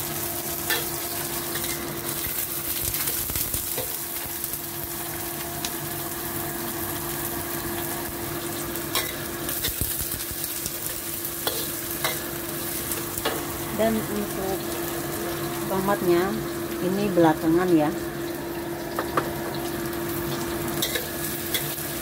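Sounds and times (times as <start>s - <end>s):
food sizzling in hot oil: 0.0s - 22.0s
spatula stirring and scraping: 11.4s - 12.2s.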